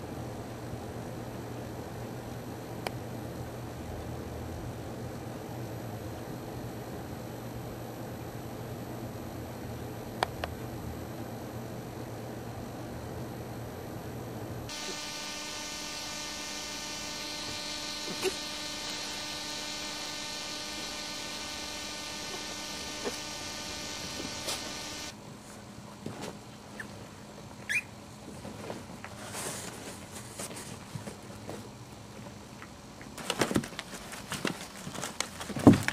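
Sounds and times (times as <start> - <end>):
electric buzz: 14.7 - 25.2
puppy squeak: 27.7 - 27.9
puppies scratching in cardboard box: 33.2 - 35.9.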